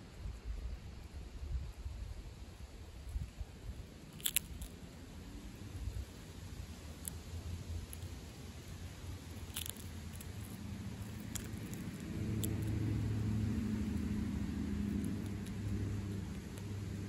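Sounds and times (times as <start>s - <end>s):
skunk crunching peanuts: 2.6s - 17.0s
passing vehicle engine rumble: 4.2s - 17.0s.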